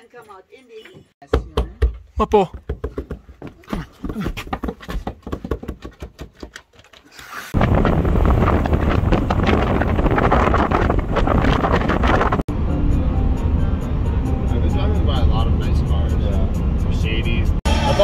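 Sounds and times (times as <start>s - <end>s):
wind buffeting microphone: 7.5s - 12.7s.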